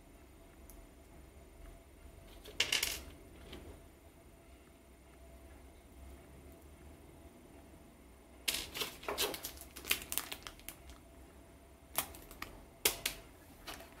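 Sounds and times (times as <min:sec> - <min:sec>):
plastic bag crinkling: 0:08.5 - 0:11.0, 0:11.9 - 0:14.0.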